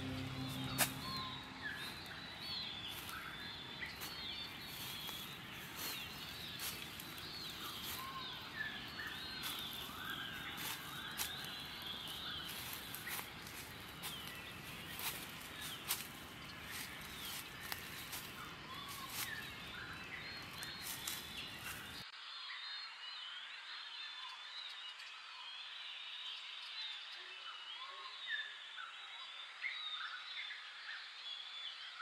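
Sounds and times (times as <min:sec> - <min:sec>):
birds chirping and calling: 0:00.0 - 0:22.0
woodland hiss: 0:03.9 - 0:22.0.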